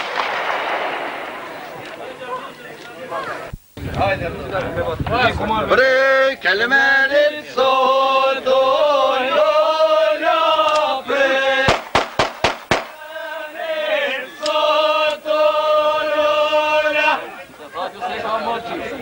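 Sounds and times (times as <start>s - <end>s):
voices chanting long notes: 5.6s - 11.8s, 12.8s - 19.0s.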